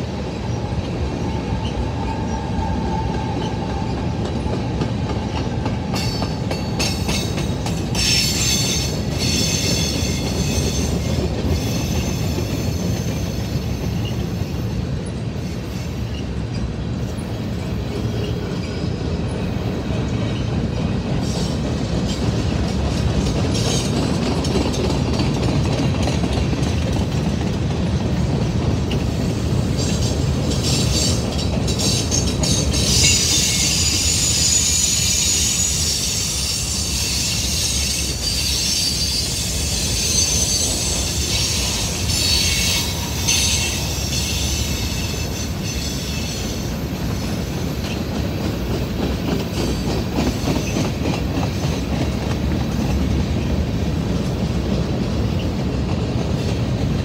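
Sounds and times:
freight train rumbling past: 0.0s - 57.0s
wheels clattering on rail joints: 0.0s - 57.0s
high-pitched wheel squeal: 31.8s - 46.7s.

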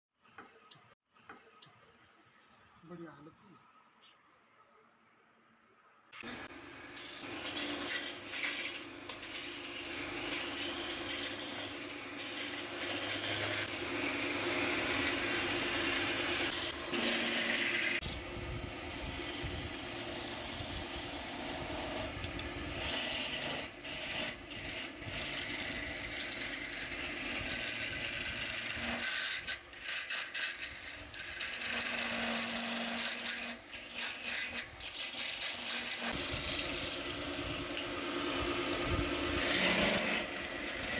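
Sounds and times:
chisel scraping spinning wood: 6.2s - 40.9s
wood lathe humming: 6.2s - 40.9s.

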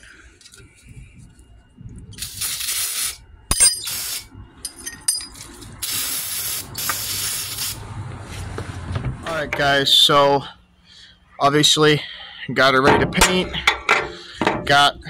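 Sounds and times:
aerosol can spraying: 5.8s - 7.8s.

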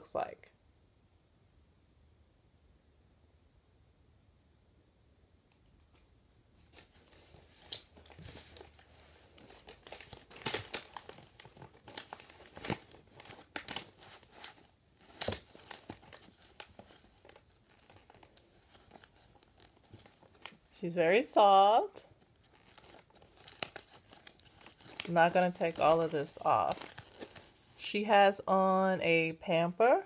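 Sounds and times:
tissue paper crinkling and rustling: 6.6s - 20.8s, 21.4s - 27.8s.

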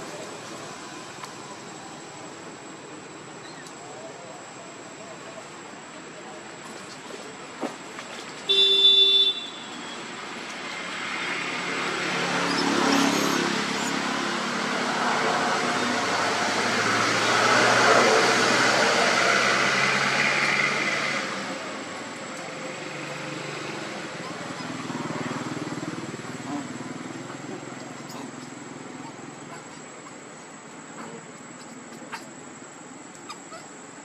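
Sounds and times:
car horn toot: 8.5s - 9.8s
vehicle passing: 10.6s - 32.8s.

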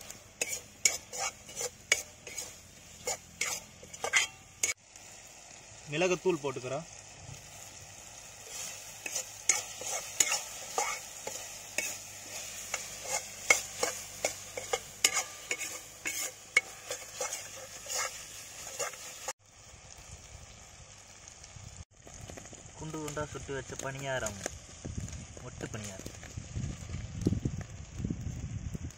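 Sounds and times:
ladle scraping metal pan: 0.0s - 4.8s, 8.4s - 19.3s
food sizzling: 0.0s - 28.9s.

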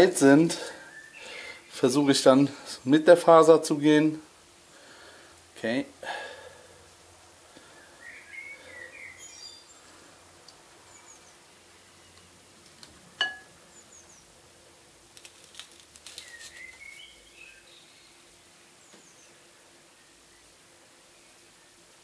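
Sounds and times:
small birds chirping: 0.6s - 3.1s, 6.8s - 10.1s, 10.8s - 12.4s, 13.6s - 14.4s, 16.0s - 21.9s
sharp ringing clink: 13.2s - 13.5s.

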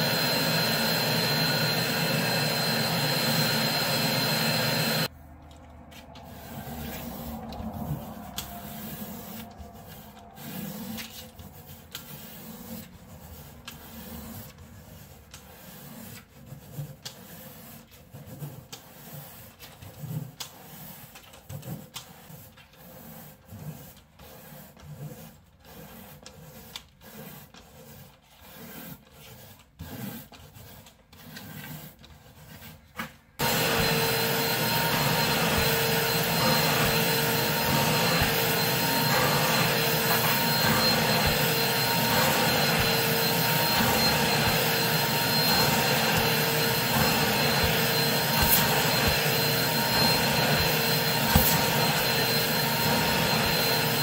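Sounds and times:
carpet extractor vacuum whine: 0.0s - 5.1s, 33.4s - 54.0s
brush scraping a rug: 0.0s - 54.0s.

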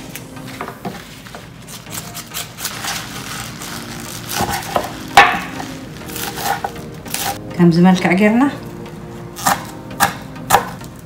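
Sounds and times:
kale leaves rustling and crunching: 1.7s - 7.4s.

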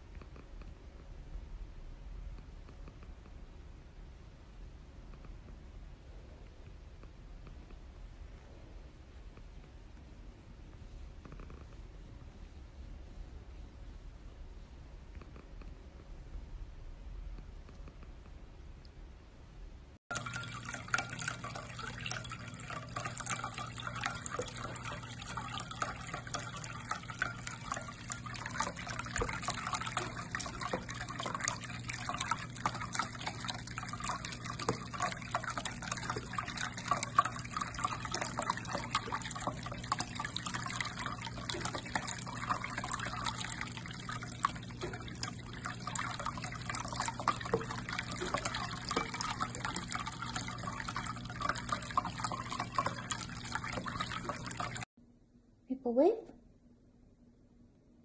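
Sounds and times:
low pump hum: 0.0s - 54.9s
cat lapping water: 20.1s - 54.9s
water trickling in fountain: 20.1s - 54.9s.

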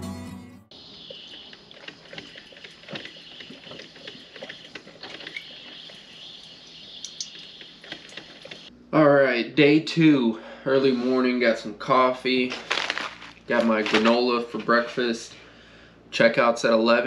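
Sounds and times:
background music: 0.0s - 0.7s.

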